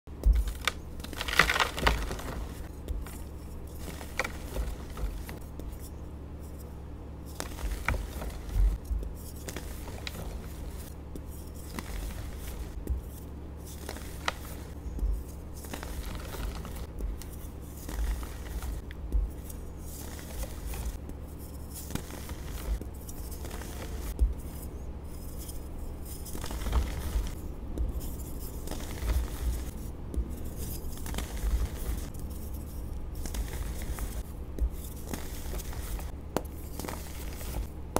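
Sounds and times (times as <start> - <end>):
chalk pieces snapping: 0.2 - 5.9
powdery rustling: 0.2 - 6.0, 7.3 - 37.9
chalk crunching: 0.2 - 6.7, 7.3 - 37.8.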